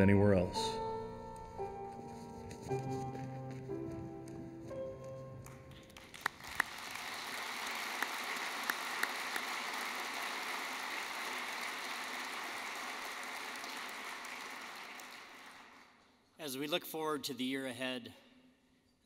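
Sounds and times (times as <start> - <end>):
audience applauding: 5.9 - 16.0.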